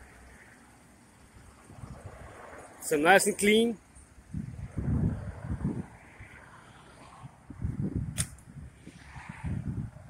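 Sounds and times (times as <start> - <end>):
wind buffeting microphone: 4.2 - 6.4, 7.0 - 10.0.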